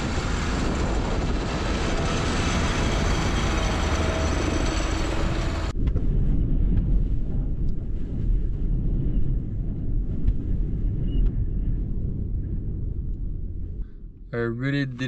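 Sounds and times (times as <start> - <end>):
snowcat engine and tracks: 0.0 - 5.8
wind buffeting a van: 0.0 - 14.3.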